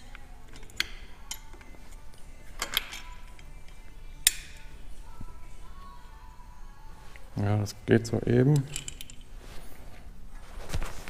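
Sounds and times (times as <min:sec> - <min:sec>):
metal tools and bolts clinking: 0:00.1 - 0:02.0, 0:02.6 - 0:04.6, 0:08.4 - 0:09.4.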